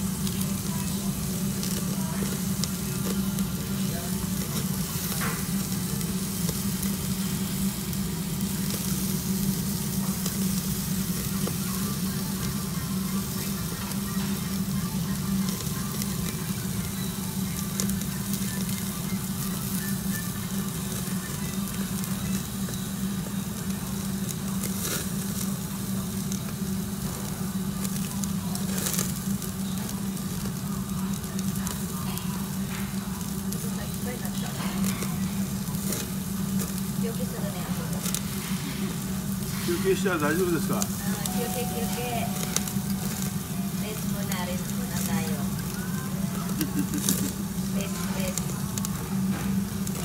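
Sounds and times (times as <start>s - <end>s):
food sizzling on a grill: 0.0s - 50.0s.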